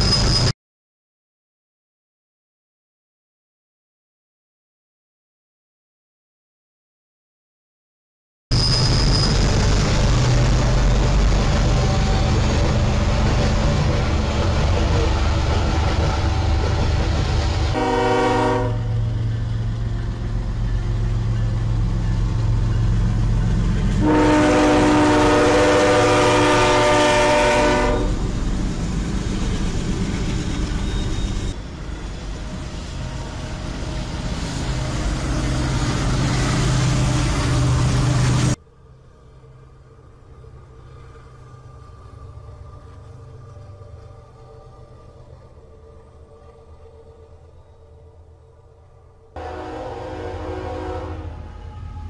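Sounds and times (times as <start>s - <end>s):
freight train rumble: 8.5s - 52.0s
locomotive horn blasts: 17.7s - 19.2s, 23.9s - 28.2s, 49.4s - 52.0s.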